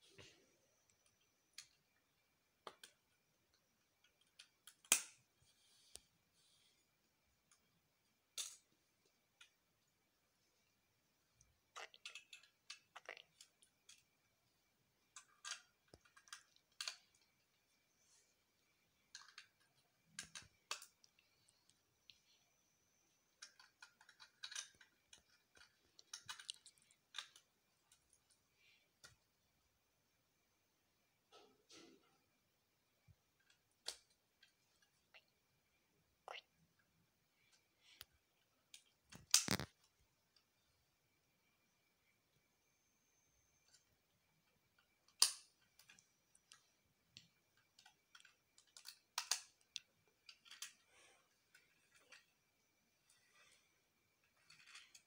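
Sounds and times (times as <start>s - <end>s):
plastic toy bricks clicking: 4.0s - 5.2s, 11.7s - 14.1s, 15.1s - 17.3s, 19.1s - 21.0s, 23.4s - 27.5s, 38.7s - 39.8s, 44.8s - 46.6s, 47.2s - 50.9s.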